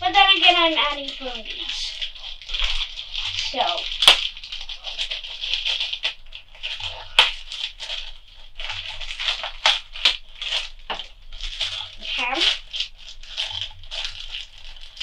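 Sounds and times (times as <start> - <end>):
plastic bag crinkling and rattling: 0.0 - 15.0.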